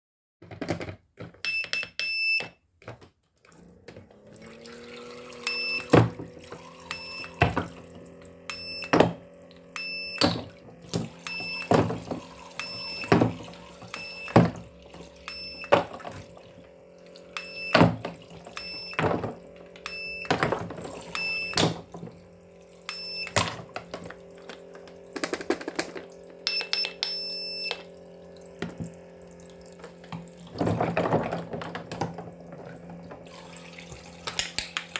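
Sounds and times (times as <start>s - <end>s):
toy cash register beeps: 1.4s - 2.6s, 5.4s - 7.6s, 8.4s - 9.0s, 9.7s - 10.4s, 11.2s - 14.5s, 15.2s - 15.8s, 17.3s - 19.0s, 19.8s - 21.8s, 22.9s - 23.6s, 26.4s - 27.9s
toy pump humming: 4.1s - 34.9s
water trickling: 27.9s - 34.4s.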